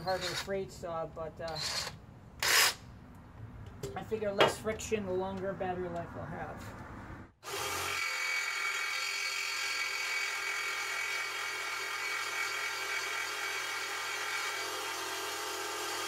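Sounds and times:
jigsaw cutting metal: 7.4 - 16.0.

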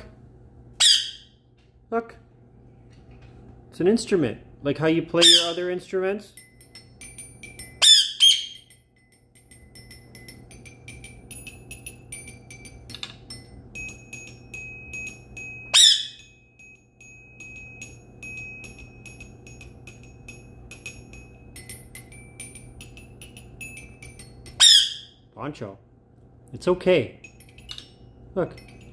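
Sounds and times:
parakeet squawk: 0.8 - 1.3, 5.2 - 5.6, 7.8 - 8.6, 15.7 - 16.2, 24.6 - 25.2
toy xylophone notes: 6.3 - 25.1.

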